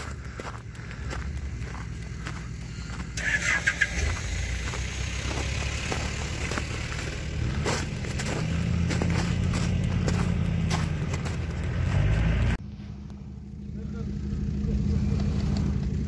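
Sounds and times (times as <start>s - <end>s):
vehicle engine running at low revs: 0.0s - 16.0s.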